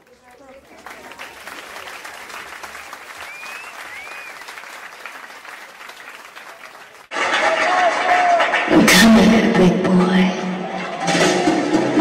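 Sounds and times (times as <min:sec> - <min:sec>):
audience applauding: 0:00.0 - 0:09.0
short whistles: 0:03.2 - 0:04.5.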